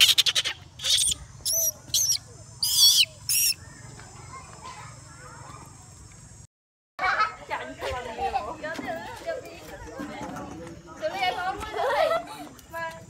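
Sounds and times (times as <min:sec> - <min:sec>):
monkey screaming cries: 0:00.0 - 0:03.7.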